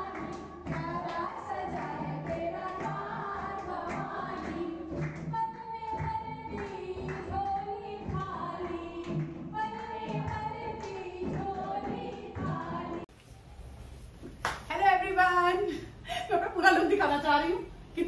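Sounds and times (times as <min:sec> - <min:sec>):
women singing together: 0:00.0 - 0:13.1.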